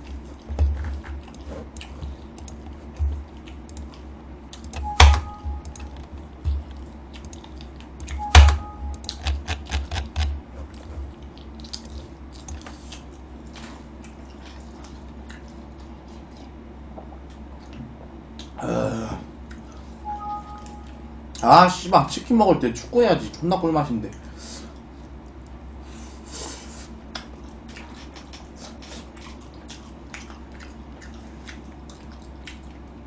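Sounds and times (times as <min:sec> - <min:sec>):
computer keyboard typing: 0:04.6 - 0:10.3
sharp knocks: 0:04.8 - 0:05.6, 0:08.3 - 0:10.4.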